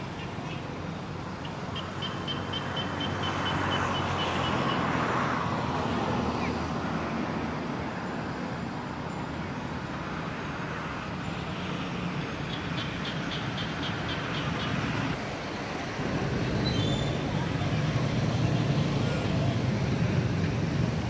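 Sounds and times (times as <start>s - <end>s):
traffic engine hum: 0.0s - 21.0s
vehicle passing: 11.7s - 21.0s.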